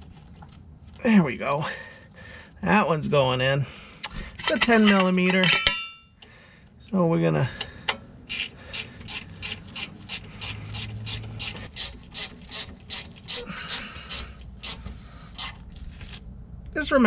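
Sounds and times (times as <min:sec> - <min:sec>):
ratchet wrench clicking: 0:08.3 - 0:15.5.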